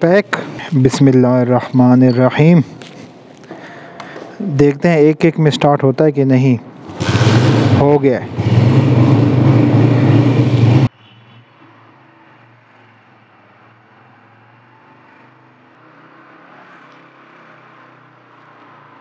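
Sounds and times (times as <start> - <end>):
motorcycle engine running: 6.9 - 10.9.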